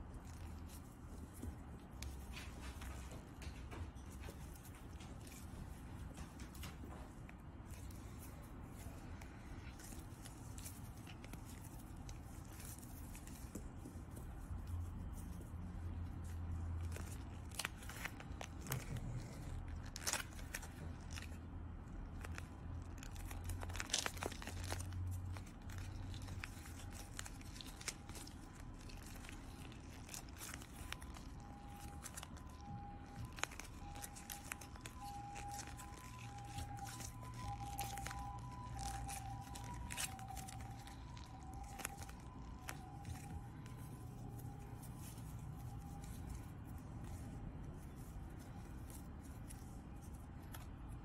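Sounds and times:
plastic crinkling and clicking: 15.9s - 51.0s.

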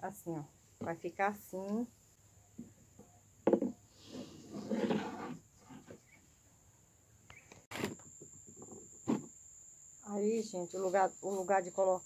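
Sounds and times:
stalk knocking on wooden table: 3.4s - 3.8s
scraping rustle: 4.0s - 6.2s.

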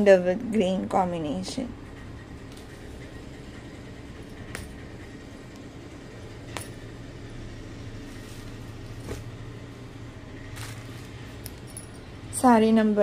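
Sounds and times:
steady low hum: 0.0s - 13.0s
handling folded fabric: 6.2s - 12.0s
bangles clinking: 10.5s - 12.4s.

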